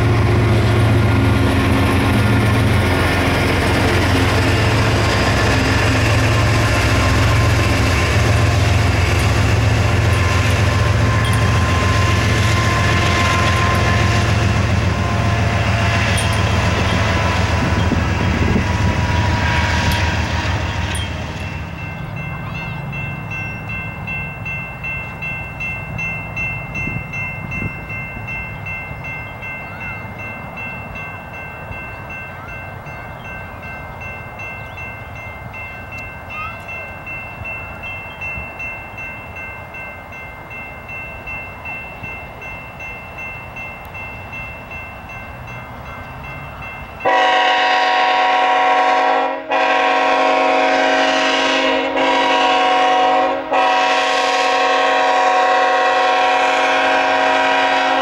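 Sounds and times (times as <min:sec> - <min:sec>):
crossing warning bell ringing: 0:00.0 - 0:58.0
train rumble: 0:00.0 - 0:58.0
train horn blasts: 0:04.0 - 0:21.0, 0:47.0 - 0:58.0.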